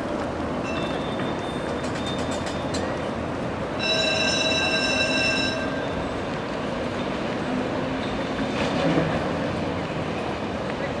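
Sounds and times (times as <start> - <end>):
tram rumbling on rails: 0.0 - 11.0
tram wheels squealing: 0.6 - 7.3.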